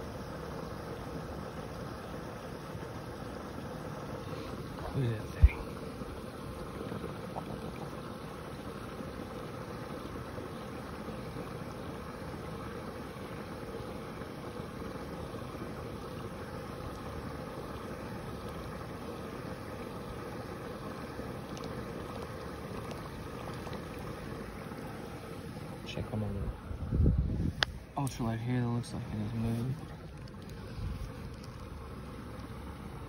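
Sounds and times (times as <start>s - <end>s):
faint steady hum: 0.0s - 33.0s
wind noise on microphone: 26.4s - 27.8s.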